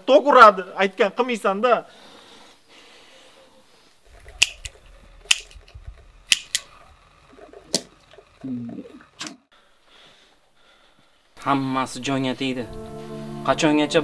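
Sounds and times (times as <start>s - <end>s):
cigarette lighter clicking: 4.3s - 5.6s, 6.2s - 6.7s.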